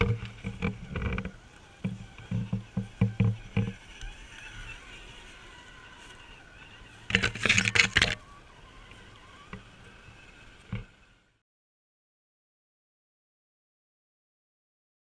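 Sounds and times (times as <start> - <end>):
leaves brushing against camera: 0.0 - 10.9
toy car motor whining: 0.0 - 11.4.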